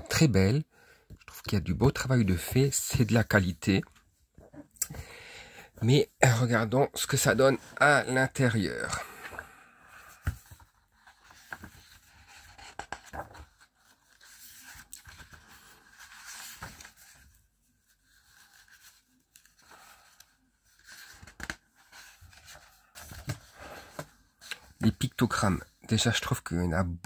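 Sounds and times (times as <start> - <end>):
book pages rustling and flicking: 8.9 - 24.9.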